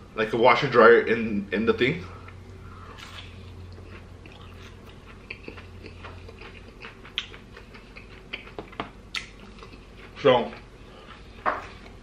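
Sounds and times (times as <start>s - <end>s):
person chewing crunchy food: 2.7s - 12.0s
wet mouth smacks: 3.0s - 9.8s.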